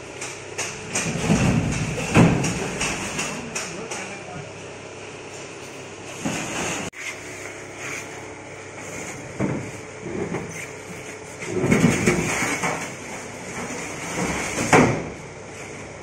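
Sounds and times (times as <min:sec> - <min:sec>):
heavy machines knocking: 0:00.2 - 0:04.4
machines scraping on floor: 0:06.1 - 0:07.2, 0:10.1 - 0:14.8.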